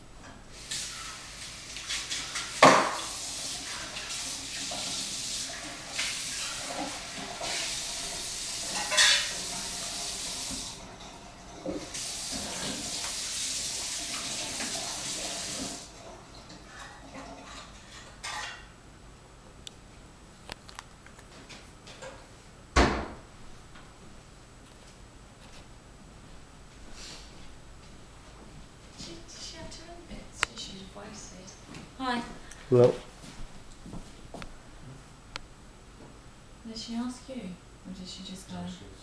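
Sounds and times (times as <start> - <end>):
water running from tap: 0.6 - 17.4
dishes clinking: 8.7 - 9.5, 16.5 - 18.7.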